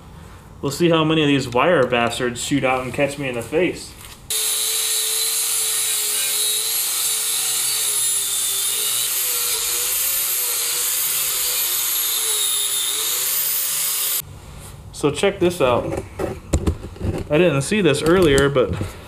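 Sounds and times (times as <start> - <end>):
angle grinder wire wheel whine: 4.3 - 14.2.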